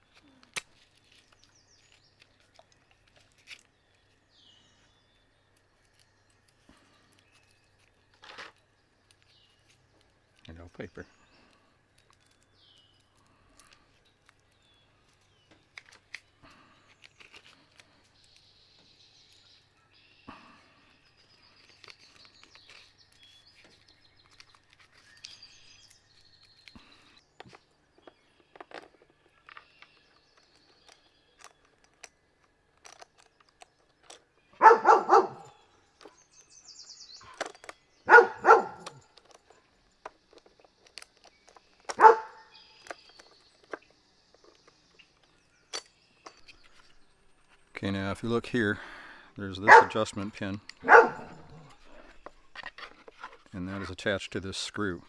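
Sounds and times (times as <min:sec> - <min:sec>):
dog barking: 0:34.6 - 0:35.5, 0:38.1 - 0:39.0, 0:42.0 - 0:42.5, 0:49.7 - 0:50.0, 0:50.8 - 0:51.7.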